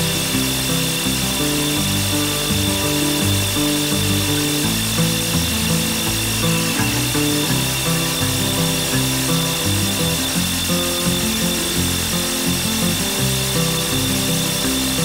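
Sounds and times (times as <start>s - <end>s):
background music with bass line: 0.0s - 15.0s.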